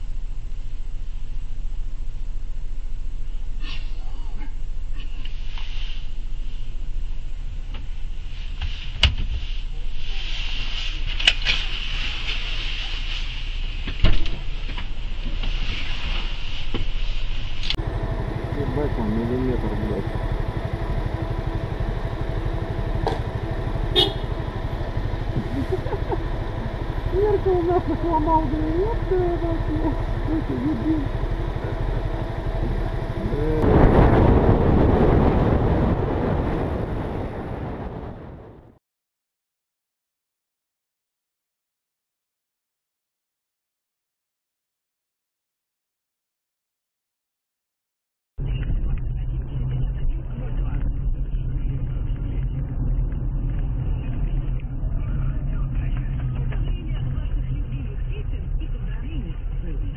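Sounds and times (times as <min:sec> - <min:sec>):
low engine rumble: 0:00.0 - 0:38.8, 0:48.4 - 0:59.9
person humming or talking: 0:27.1 - 0:31.8, 0:33.2 - 0:33.6.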